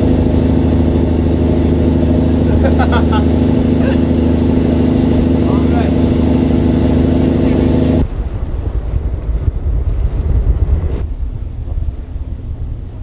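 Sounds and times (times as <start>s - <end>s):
boat engine running: 0.0s - 13.0s
wind buffeting microphone: 3.4s - 13.0s.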